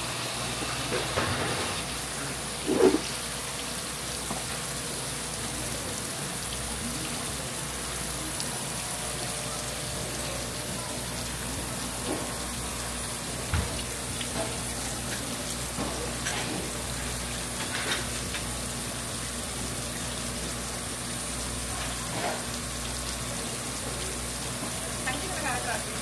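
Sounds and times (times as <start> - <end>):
running water rushing: 0.0 - 26.0.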